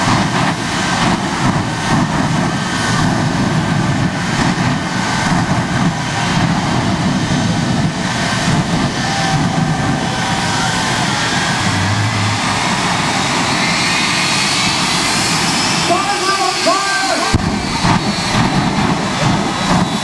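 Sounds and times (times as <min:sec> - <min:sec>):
jet engine blast: 0:00.0 - 0:20.0.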